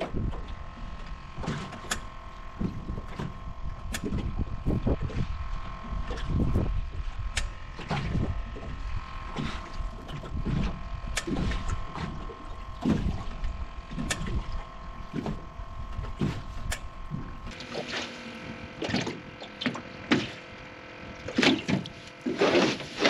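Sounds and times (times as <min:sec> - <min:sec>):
waves slapping against boat hull: 0:06.0 - 0:18.2.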